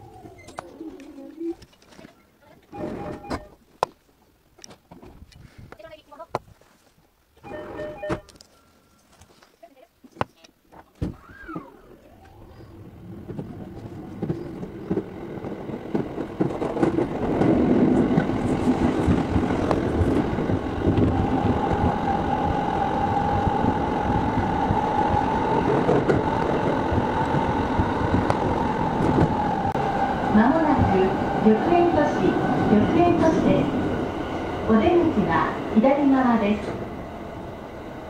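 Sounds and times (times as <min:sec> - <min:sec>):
train wheels and motors rumbling: 0:11.2 - 0:38.0.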